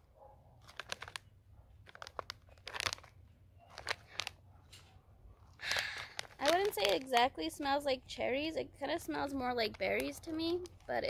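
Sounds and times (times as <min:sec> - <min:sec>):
foil pouch crinkling: 0:00.6 - 0:04.4, 0:05.6 - 0:07.6, 0:08.8 - 0:11.0.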